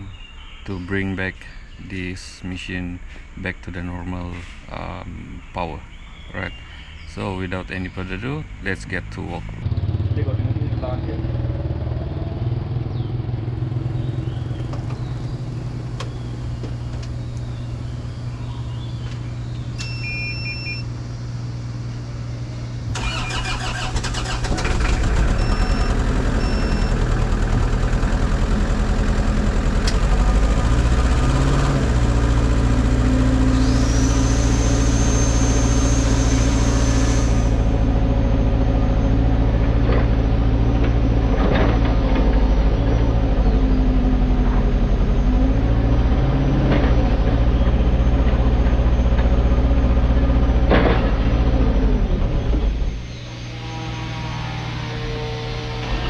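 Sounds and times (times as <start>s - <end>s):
diesel engine starting and running: 0.0s - 56.0s
warning beeps: 19.8s - 20.9s, 25.3s - 27.1s
high whine: 52.0s - 56.0s.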